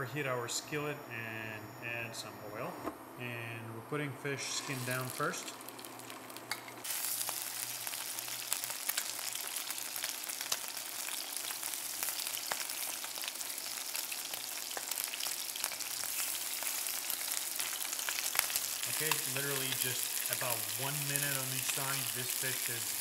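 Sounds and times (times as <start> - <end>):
fish sizzling in hot oil: 4.6 - 23.0
oil crackling and popping: 4.6 - 23.0.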